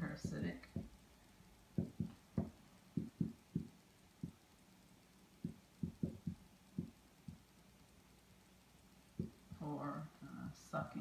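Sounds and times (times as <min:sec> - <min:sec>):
marker knocking on whiteboard: 0:00.1 - 0:01.0, 0:01.7 - 0:04.4, 0:05.4 - 0:07.5, 0:09.2 - 0:09.6.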